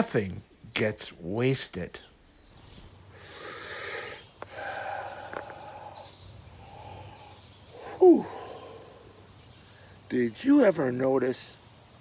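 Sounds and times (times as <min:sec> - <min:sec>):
man breathing deeply through mouth: 0:03.0 - 0:10.1.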